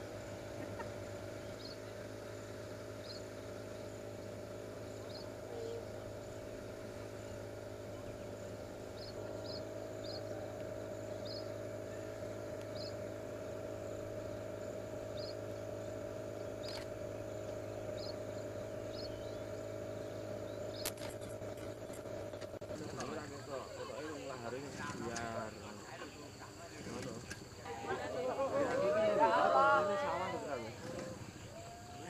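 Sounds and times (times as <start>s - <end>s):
insects chirping: 0.0s - 32.0s
steady hum: 0.0s - 32.0s
sharp click: 20.8s - 23.1s.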